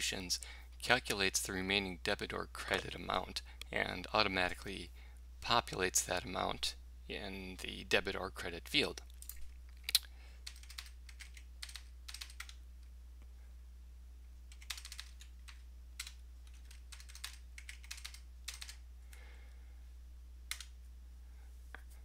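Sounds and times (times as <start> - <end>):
faint low hum: 0.0 - 22.0
keyboard typing: 10.4 - 12.6, 14.5 - 18.8, 20.5 - 20.7.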